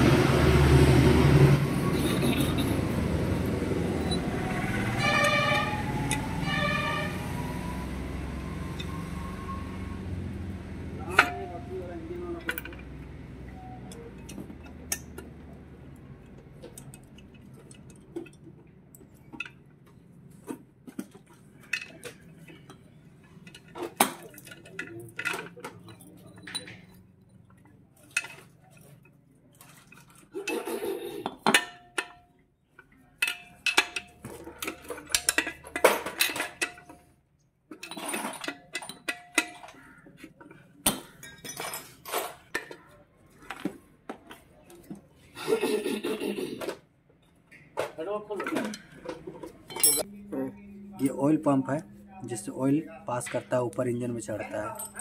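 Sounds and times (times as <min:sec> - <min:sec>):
metal tools clinking on engine casing: 0:03.9 - 0:06.7, 0:11.0 - 0:44.5, 0:47.1 - 0:50.1, 0:52.3 - 0:55.0.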